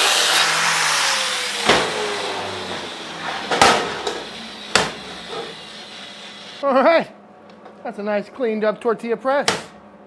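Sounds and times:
angle grinder grinding steel: 0:00.0 - 0:06.6.

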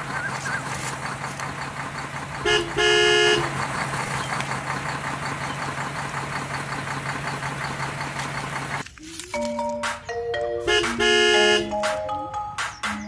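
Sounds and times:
toy horn tooting: 0:02.4 - 0:03.5, 0:10.6 - 0:11.8.

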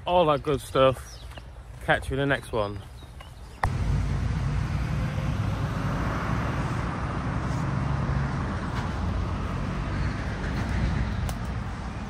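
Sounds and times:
rumble of passing cars: 0:03.6 - 0:12.0.

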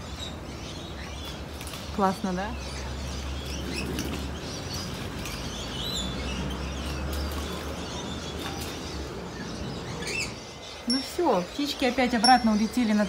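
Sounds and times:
birds chirping and calling: 0:00.0 - 0:13.0.

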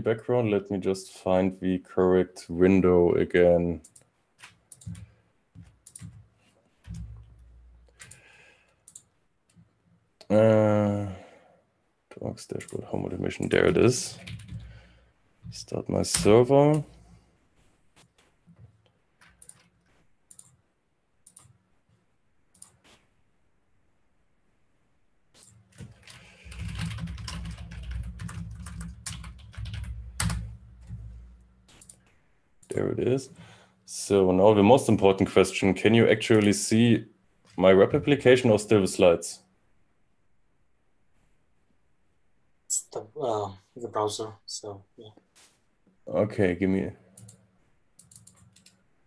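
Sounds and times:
typing on a computer keyboard: 0:03.8 - 0:09.6, 0:14.1 - 0:14.8, 0:19.2 - 0:20.6, 0:21.2 - 0:21.6, 0:25.4 - 0:31.0, 0:48.0 - 0:48.8
low steady hum: 0:23.2 - 0:44.4.

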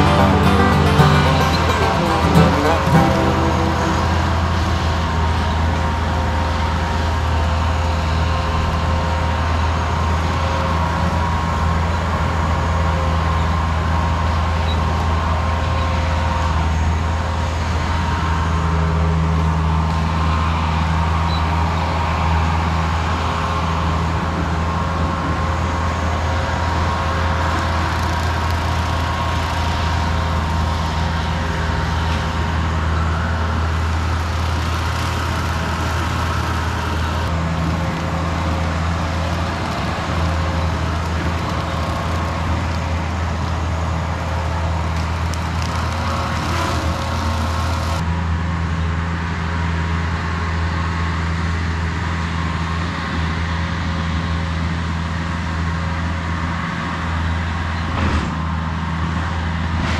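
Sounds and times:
diesel engine humming: 0:00.0 - 0:10.6.

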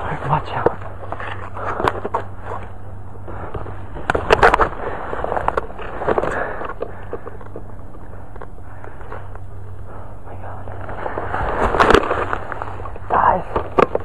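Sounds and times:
leaves and twigs rustling: 0:00.0 - 0:14.0
sharp crackles of brush: 0:10.7 - 0:14.0.

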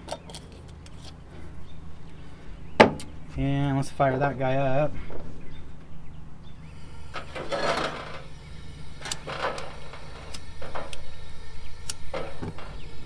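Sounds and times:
gas burner hissing: 0:06.5 - 0:13.0
stove igniter clicks: 0:09.0 - 0:11.1, 0:11.8 - 0:12.6.

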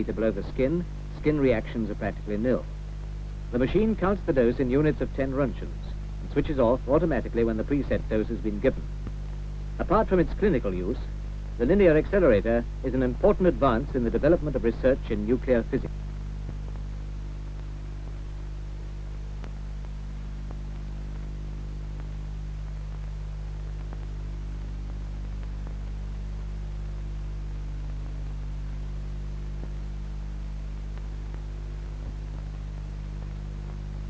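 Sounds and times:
film soundtrack hum and hiss: 0:00.0 - 0:34.0
faint clicks: 0:19.3 - 0:27.0, 0:30.7 - 0:34.0.

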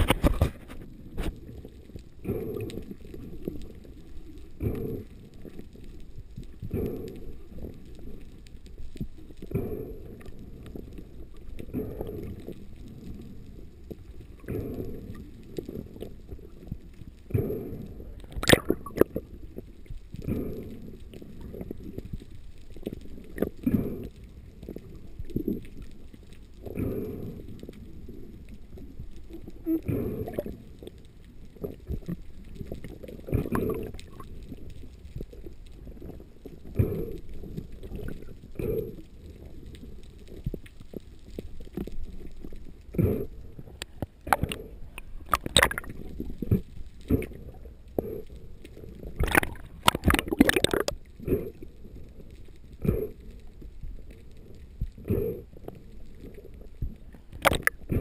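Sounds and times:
muffled underwater water noise: 0:00.0 - 0:58.0.

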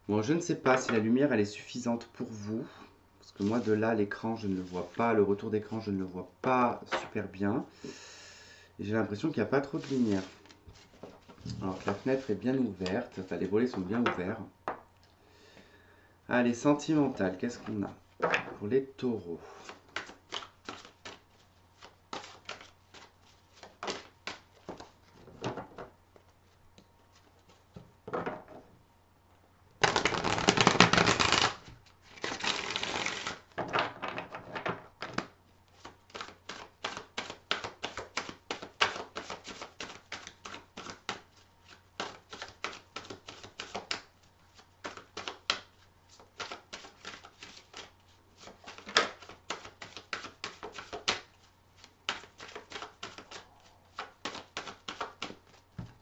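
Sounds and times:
cards clicking while shuffled: 0:19.7 - 0:21.2, 0:21.8 - 0:24.9, 0:29.8 - 0:31.6, 0:32.2 - 0:33.4, 0:34.1 - 0:55.6
rustling rush of cards: 0:29.8 - 0:33.4.

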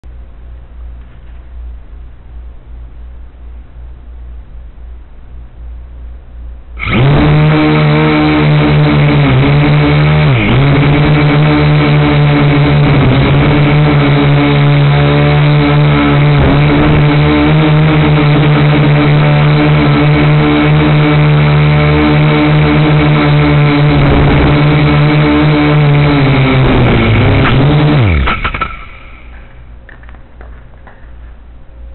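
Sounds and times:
small drone propellers buzzing: 0:06.8 - 0:31.2.

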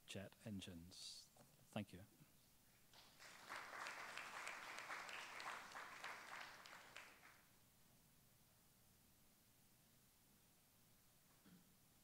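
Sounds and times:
audience applauding: 0:02.9 - 0:07.5.

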